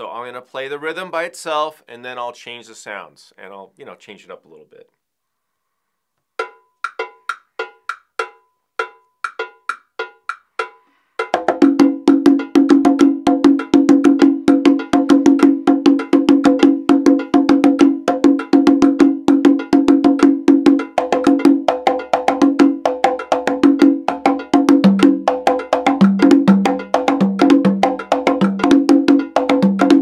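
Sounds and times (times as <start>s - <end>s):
congas played by hand: 6.4s - 30.0s.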